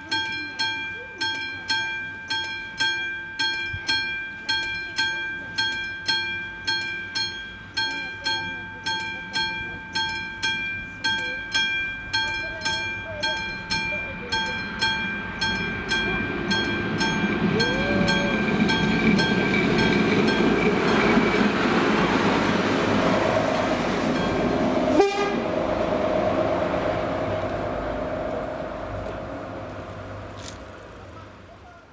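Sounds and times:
level crossing bell ringing: 0.0 - 23.4
train rumble: 0.0 - 31.9.

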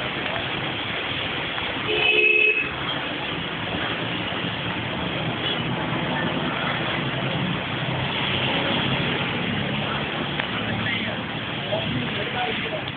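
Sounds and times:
rain hiss on wet road: 0.0 - 12.9.

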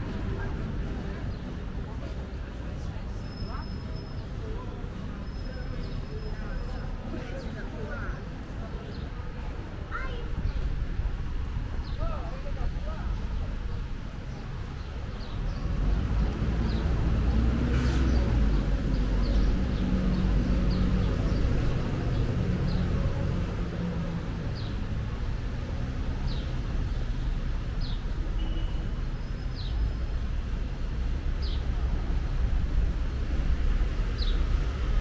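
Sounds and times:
vehicle engine rumble passing: 15.4 - 28.3.

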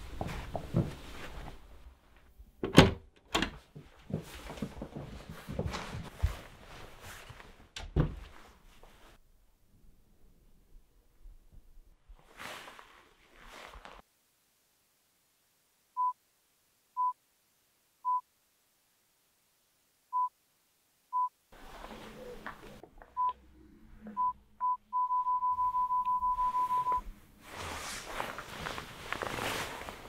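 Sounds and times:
rustling handling noise: 0.0 - 2.4, 3.6 - 9.2, 12.1 - 14.0, 27.0 - 30.0
phone keypad beeps: 24.2 - 27.0.

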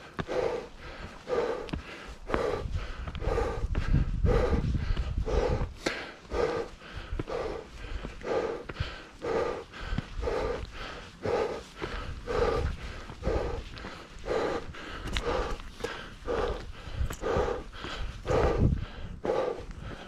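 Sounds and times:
person breathing hard: 0.0 - 20.0
low microphone rumble: 2.3 - 15.6.

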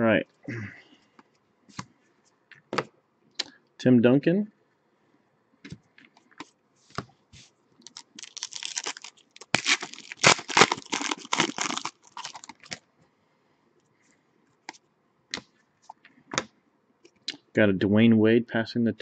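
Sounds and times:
foil wrapper tearing and crinkling: 7.8 - 12.8.

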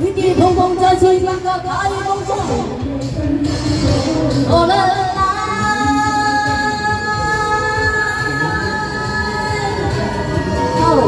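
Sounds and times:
pop backing track with beat: 0.0 - 11.0
woman singing into a microphone: 4.4 - 11.0.

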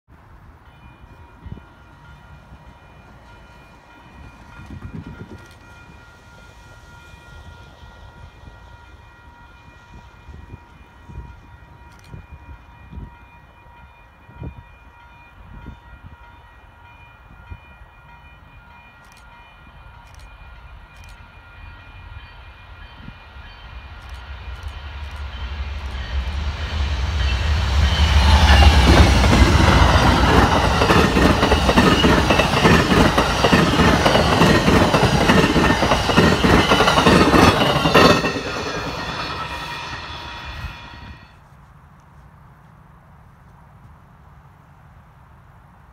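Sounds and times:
train wheels clattering over rails: 24.1 - 41.0
faint steady high tones: 27.2 - 41.4.

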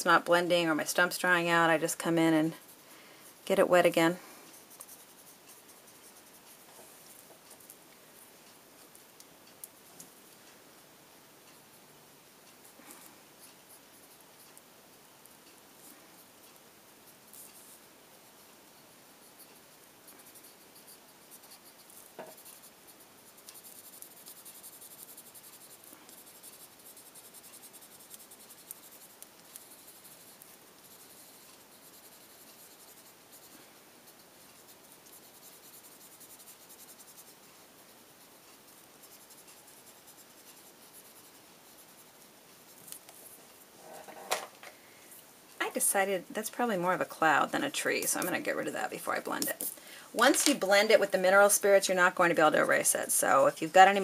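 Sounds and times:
paper stump rubbing on card: 20.1 - 33.5, 38.3 - 42.8.

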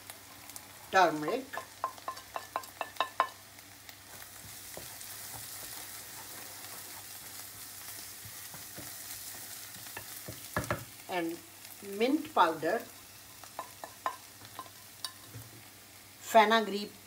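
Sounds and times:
spices sizzling in hot oil: 0.0 - 17.0
wooden spoon clicking on dish: 1.6 - 3.4.

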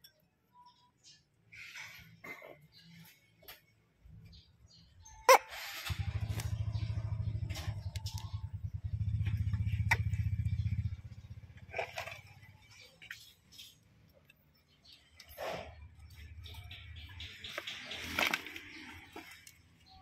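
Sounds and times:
small engine pulsing drone: 5.5 - 13.0
light scrapes: 15.3 - 16.0.

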